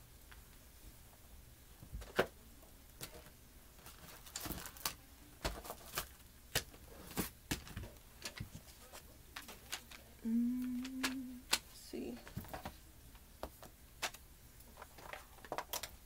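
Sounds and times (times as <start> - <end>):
small items clicking and tapping: 3.0 - 16.0.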